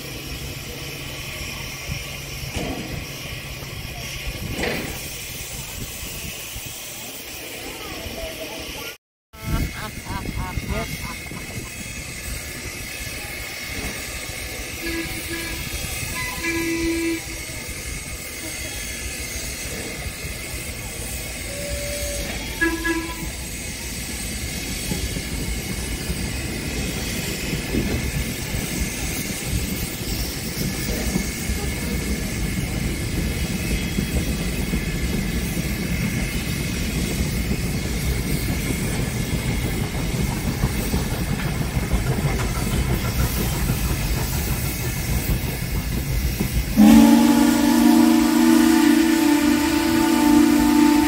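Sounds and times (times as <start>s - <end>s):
train wheels rumbling on rails: 0.0s - 51.0s
steam locomotive whistle: 14.5s - 18.0s, 21.2s - 23.8s, 46.6s - 51.0s.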